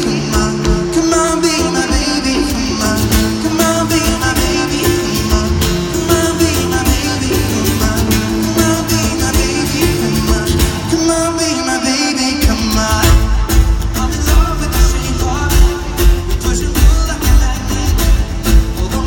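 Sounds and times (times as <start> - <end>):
live pop music over sound system: 0.0 - 19.0.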